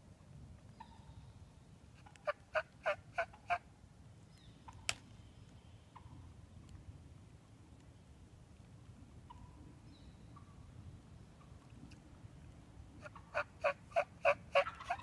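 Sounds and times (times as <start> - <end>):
wild turkey yelps: 2.0 - 3.6, 13.0 - 15.0.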